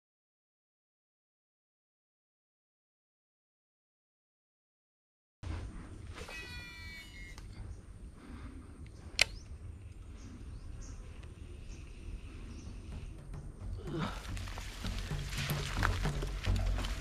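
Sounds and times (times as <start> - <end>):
meow-like animal calls: 6.2 - 7.5
faint high tone: 6.2 - 7.6
sharp click: 8.8 - 9.5.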